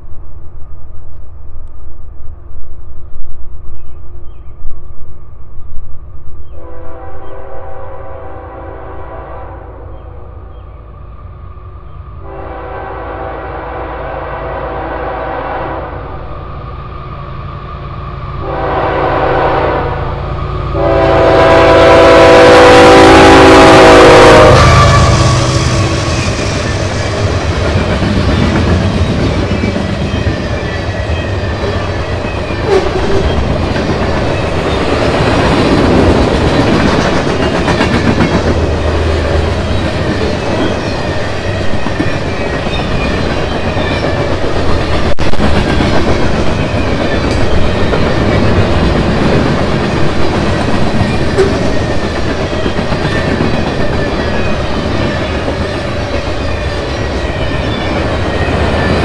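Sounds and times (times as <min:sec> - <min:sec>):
freight train rumbling past: 0:00.0 - 0:59.0.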